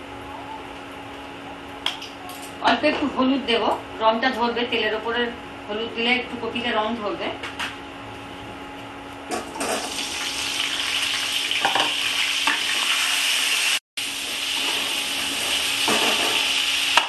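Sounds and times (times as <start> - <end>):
vegetables sizzling in hot oil: 9.6 - 17.0.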